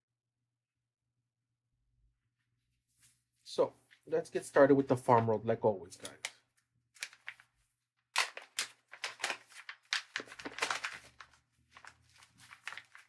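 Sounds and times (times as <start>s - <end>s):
packaging crinkling and clicking: 8.2s - 13.0s.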